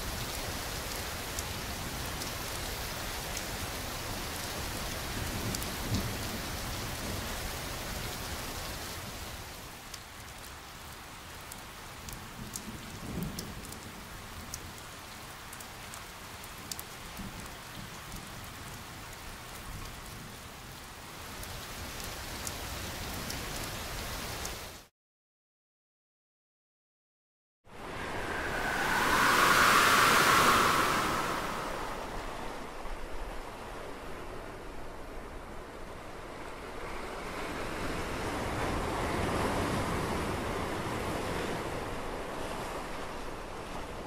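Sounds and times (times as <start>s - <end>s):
steady rain: 0.0s - 24.9s, 27.8s - 44.0s
scattered raindrop ticks: 0.1s - 3.6s, 9.7s - 24.8s.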